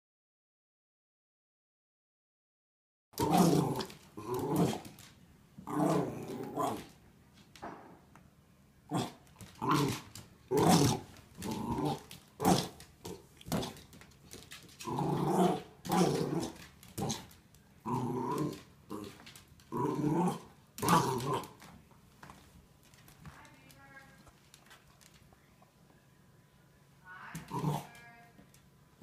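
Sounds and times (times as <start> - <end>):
dogs growling in play: 3.2 - 7.0, 8.9 - 21.8, 27.4 - 28.0.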